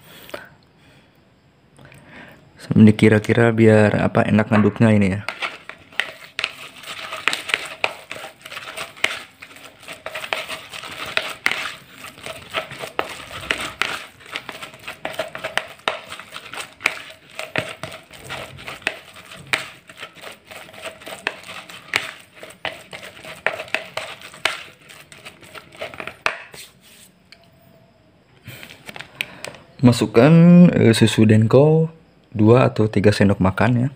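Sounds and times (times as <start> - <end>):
paste stirred in plastic bowl: 4.4 - 27.1.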